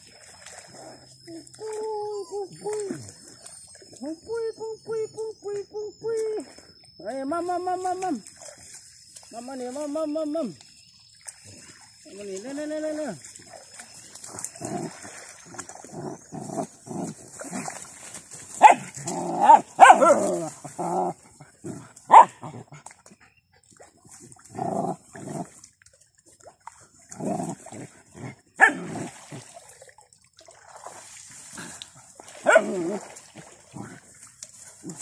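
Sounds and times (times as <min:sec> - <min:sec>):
puppies barking and whining: 0:18.6 - 0:22.6.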